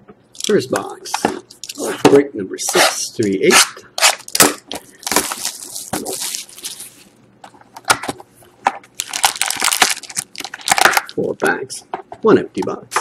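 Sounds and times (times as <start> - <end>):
cardboard rustling and scraping: 5.1 - 7.1.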